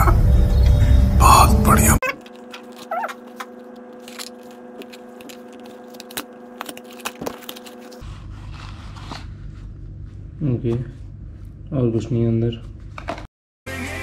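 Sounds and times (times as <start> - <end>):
cardboard box crinkling and scraping: 3.9 - 9.3.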